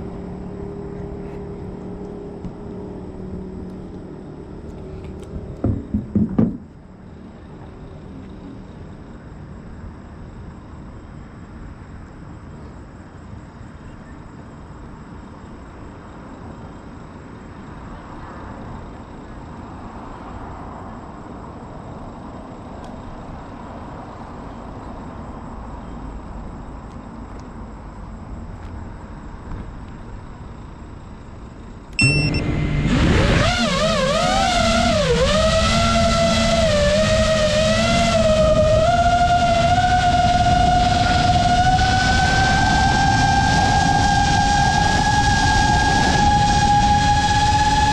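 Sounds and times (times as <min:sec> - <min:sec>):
low outdoor rumble: 0:00.0 - 0:12.6
quadcopter motors whining: 0:32.0 - 0:47.9.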